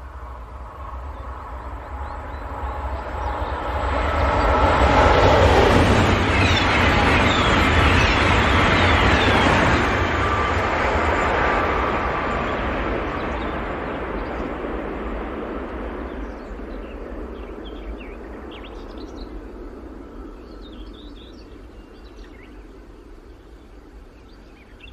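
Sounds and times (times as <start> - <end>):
high-speed train rumble: 0.0 - 24.9
birds chirping: 0.6 - 10.7.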